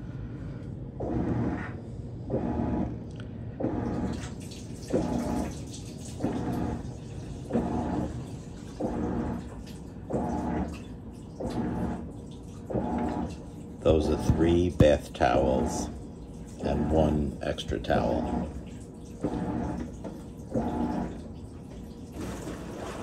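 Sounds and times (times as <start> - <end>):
washing machine motor humming strokes: 0.0 - 23.0
towels shifting in tub: 22.1 - 23.0.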